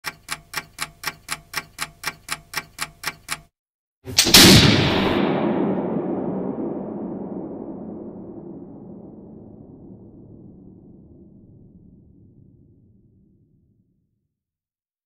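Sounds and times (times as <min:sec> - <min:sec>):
clock ticking: 0:00.0 - 0:03.5
musket shot with echo: 0:04.1 - 0:08.0.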